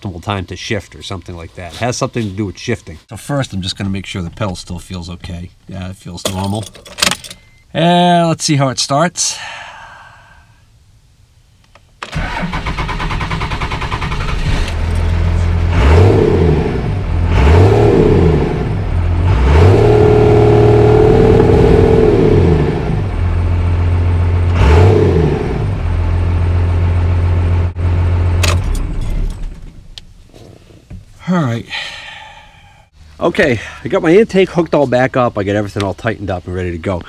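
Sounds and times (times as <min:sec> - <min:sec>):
diesel engine starting and revving: 0:12.1 - 0:29.9.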